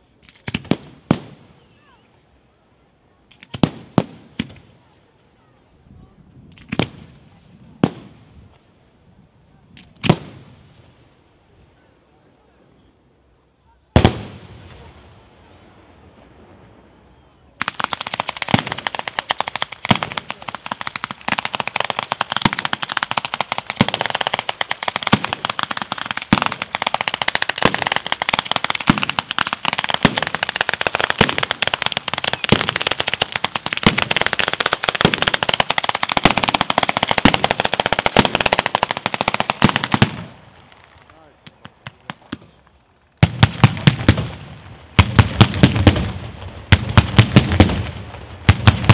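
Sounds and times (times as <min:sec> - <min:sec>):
rapid firecracker crackle: 0:17.6 - 0:48.9.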